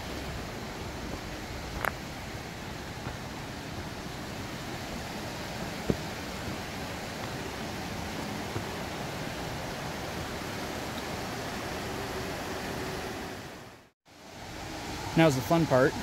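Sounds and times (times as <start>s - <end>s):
river rushing over rocks: 0.0s - 16.0s.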